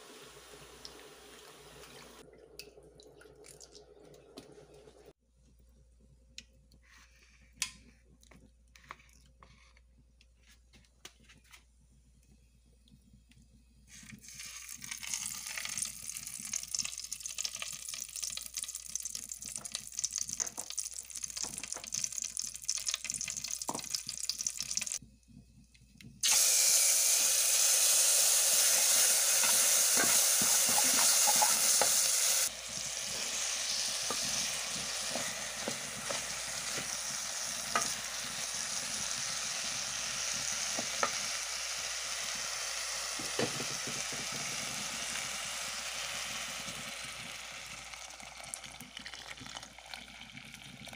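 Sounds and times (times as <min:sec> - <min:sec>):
rice frying in oil: 0:13.9 - 0:25.0, 0:26.2 - 0:50.9
hot oil sizzling and crackling: 0:14.0 - 0:25.0, 0:26.2 - 0:50.9
wooden spoon scraping and tapping: 0:29.4 - 0:32.1, 0:34.0 - 0:37.0.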